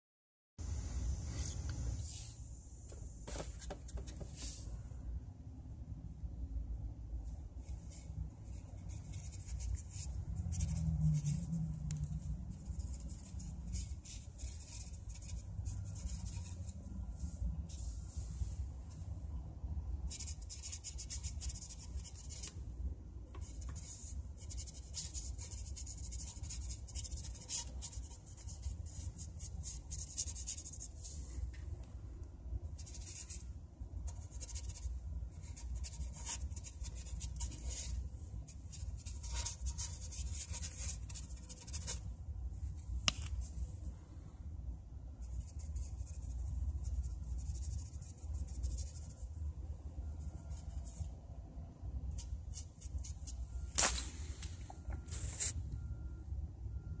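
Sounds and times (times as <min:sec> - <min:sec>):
steady low hum: 0:00.6 - 0:57.0
brush dabbing paint on canvas: 0:07.6 - 0:11.5, 0:12.1 - 0:18.6, 0:32.8 - 0:42.1, 0:45.2 - 0:49.3.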